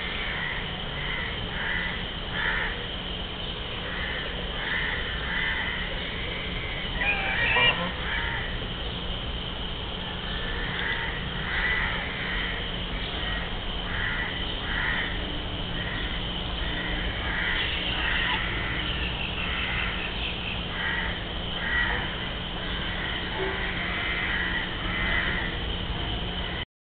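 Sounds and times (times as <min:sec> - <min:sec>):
geese honking: 0:03.8 - 0:08.8, 0:10.2 - 0:25.8.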